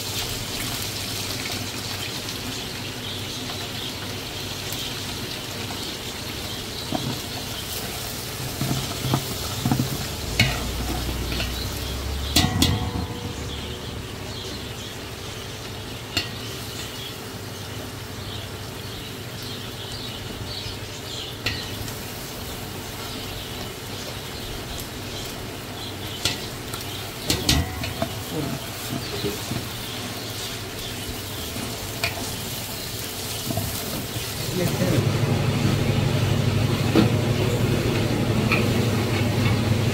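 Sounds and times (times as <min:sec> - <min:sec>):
oil sizzling: 0:00.0 - 0:39.9
ladle clinking against pot: 0:12.3 - 0:13.4.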